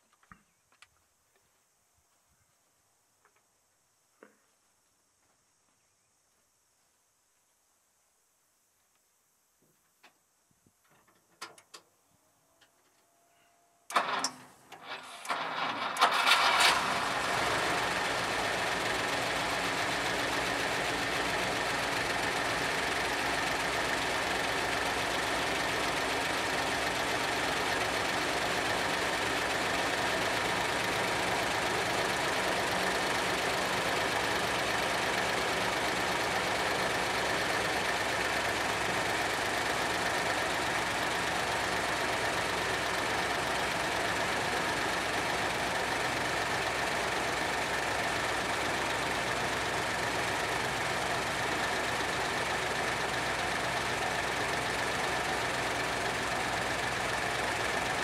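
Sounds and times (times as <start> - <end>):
car engine idling: 15.3 - 58.0.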